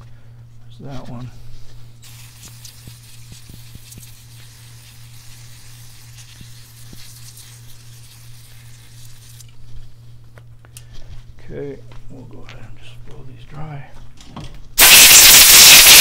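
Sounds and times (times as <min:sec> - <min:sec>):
spray hissing: 0:14.8 - 0:16.0.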